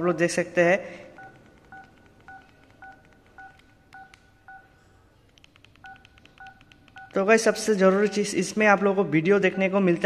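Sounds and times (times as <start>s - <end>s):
phone key beeps: 1.2s - 4.8s, 5.5s - 8.4s.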